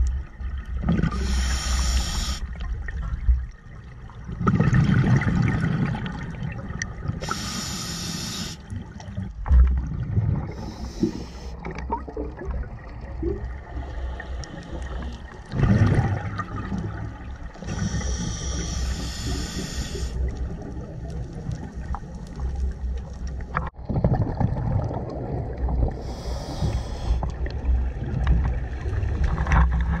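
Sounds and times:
breathing through scuba regulator: 1.1s - 2.5s, 7.2s - 8.7s, 10.5s - 11.7s, 13.8s - 15.2s, 17.6s - 20.3s, 26.0s - 27.3s
exhaled bubbles rushing: 4.3s - 7.2s, 8.8s - 13.8s, 15.3s - 18.0s, 23.8s - 26.8s.

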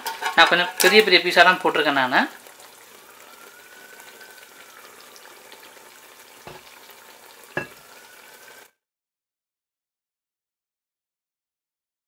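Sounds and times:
gravy sizzling and bubbling in pot: 0.0s - 8.8s.

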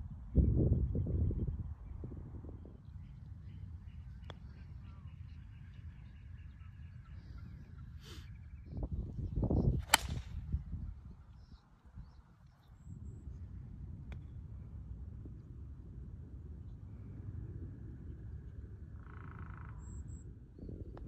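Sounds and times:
wind rumble on microphone: 0.0s - 21.0s
golf club striking ball: 9.8s - 10.4s.

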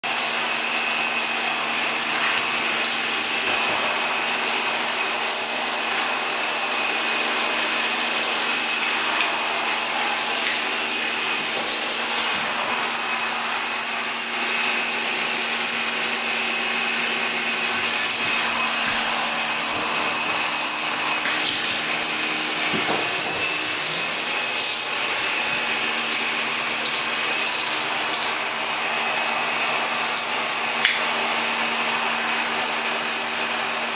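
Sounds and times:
shower spraying water: 0.1s - 33.9s.

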